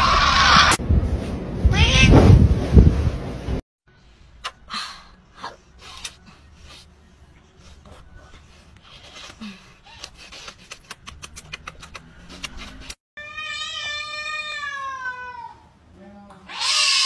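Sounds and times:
kissing smacks: 9.1 - 13.0
cat meowing: 13.2 - 15.7.

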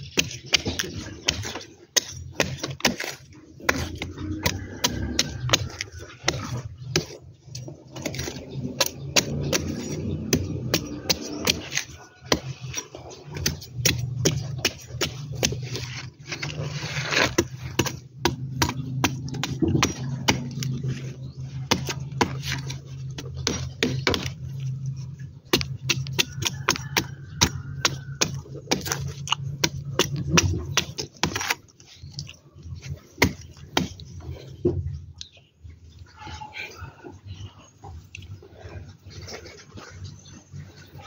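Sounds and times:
machete chopping: 7.9 - 16.5, 17.2 - 20.9, 21.6 - 24.4, 25.5 - 31.6, 33.2 - 34.0.

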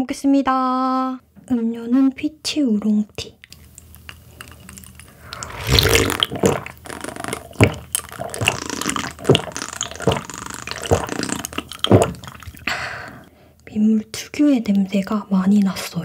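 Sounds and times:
person gulping a drink: 3.6 - 12.7.

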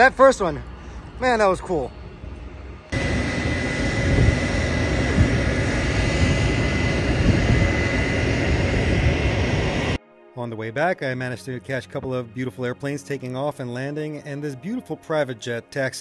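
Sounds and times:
jet engines running: 0.0 - 10.0.

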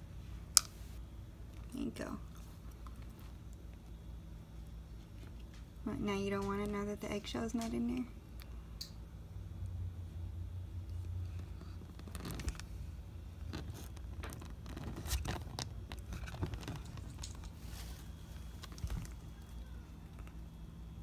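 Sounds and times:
lizard eating clicks and scrapes: 10.9 - 19.3.

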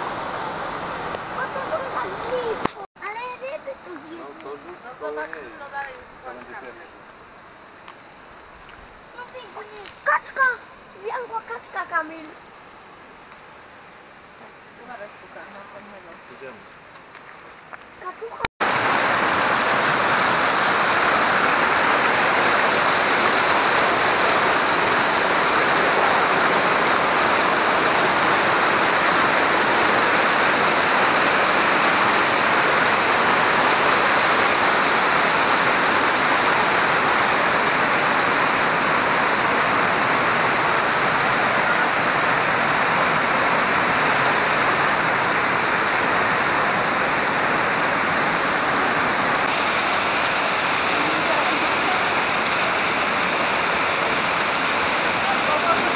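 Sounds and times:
water rushing over rocks: 0.0 - 6.6, 18.0 - 55.9.

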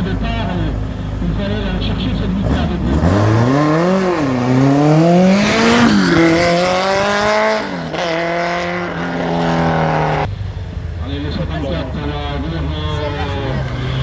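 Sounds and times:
race car engine accelerating: 1.8 - 10.3.

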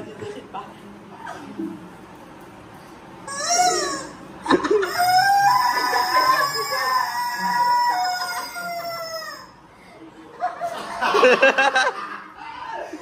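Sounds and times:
rooster crowing: 4.8 - 9.5.

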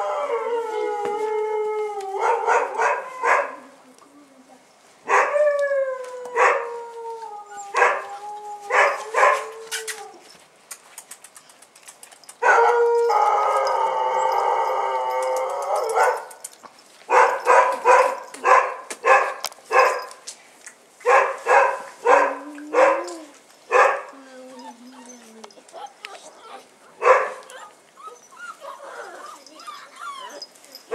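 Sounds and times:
puppies yelping and whining: 24.3 - 30.9.

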